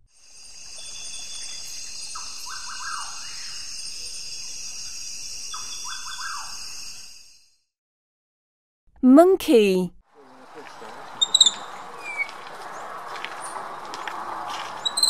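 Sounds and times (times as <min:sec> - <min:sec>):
frog calling: 0:10.2 - 0:12.4.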